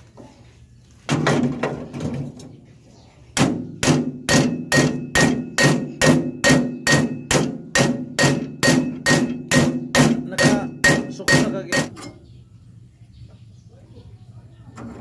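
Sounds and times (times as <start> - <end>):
hammer blows on steel: 3.4 - 12.0.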